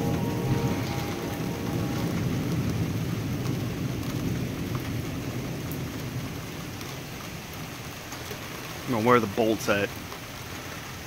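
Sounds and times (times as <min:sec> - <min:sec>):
thunder rumbling: 0:00.0 - 0:07.7
rain hissing: 0:00.0 - 0:11.0.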